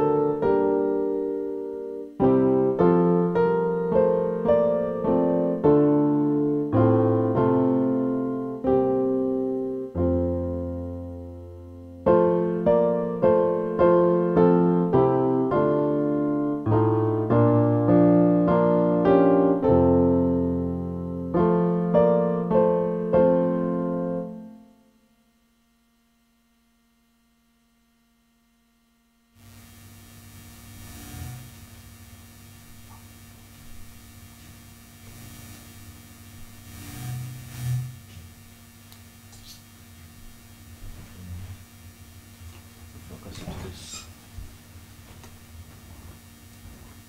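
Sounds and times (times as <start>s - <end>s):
keyboard piano chords: 0.0s - 24.9s
faint room noise: 0.0s - 47.0s
low hum: 24.0s - 47.0s.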